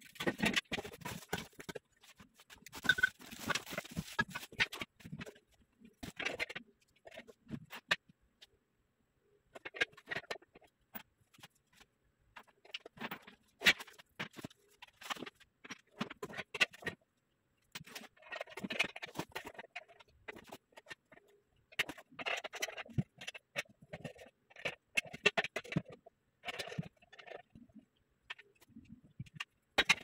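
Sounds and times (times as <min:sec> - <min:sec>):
cardboard rustling: 0:00.0 - 0:05.4.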